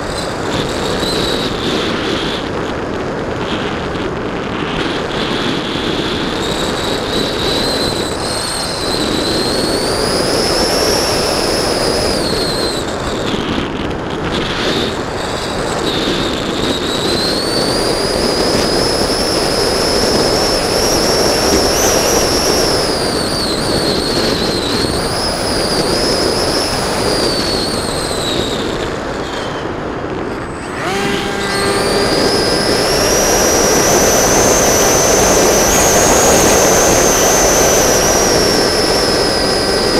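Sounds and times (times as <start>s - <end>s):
electric motor and propeller whine: 0.0s - 39.9s
wind rushing: 13.7s - 39.9s.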